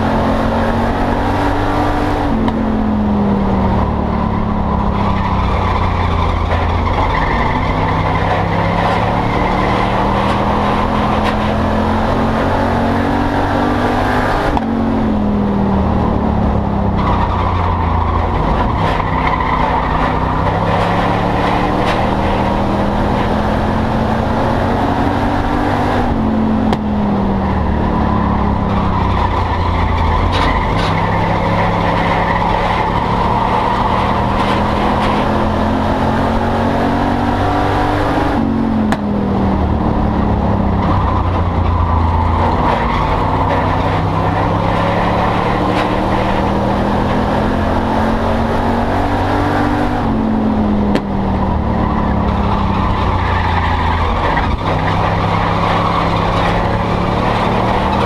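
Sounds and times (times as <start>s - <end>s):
race car engine revving: 0.0s - 58.0s.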